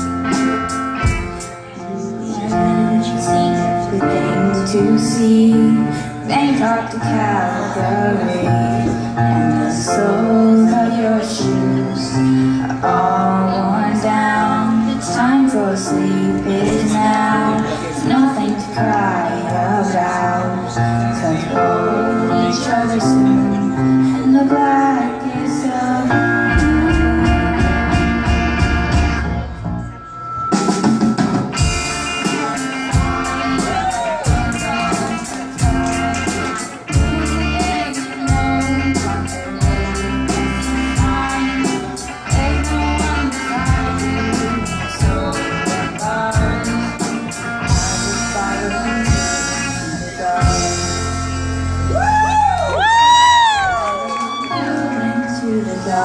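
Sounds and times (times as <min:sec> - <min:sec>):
drums steady beat: 0:00.0 - 0:01.6, 0:26.5 - 0:29.4, 0:30.5 - 0:48.4
person singing: 0:00.0 - 0:28.8, 0:31.6 - 0:56.0
live rock band: 0:00.0 - 0:56.0.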